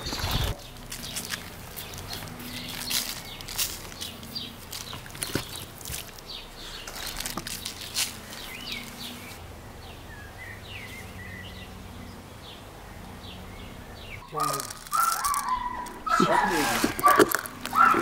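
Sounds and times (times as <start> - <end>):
small birds chirping: 0.0 - 18.0
sharp ticks and clicks: 14.2 - 16.1.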